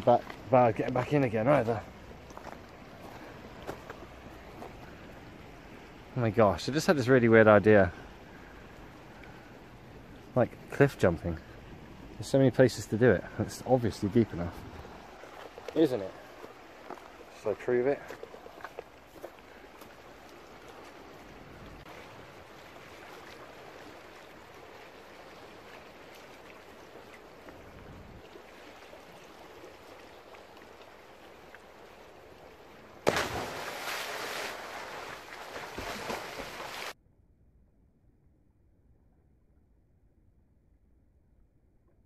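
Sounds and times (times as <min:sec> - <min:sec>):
sea water washing against rocks: 0:33.0 - 0:37.0.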